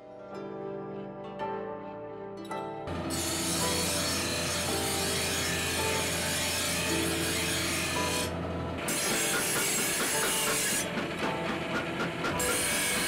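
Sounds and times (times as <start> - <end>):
knife grinding on wheel: 3.0 - 13.0.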